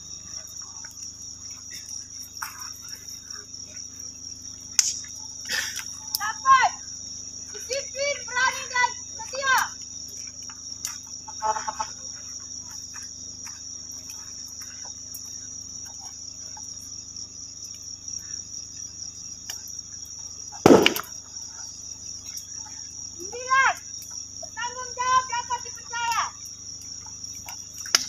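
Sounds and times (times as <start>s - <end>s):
crickets trilling: 0.0s - 28.0s
loud thump: 20.7s - 21.0s.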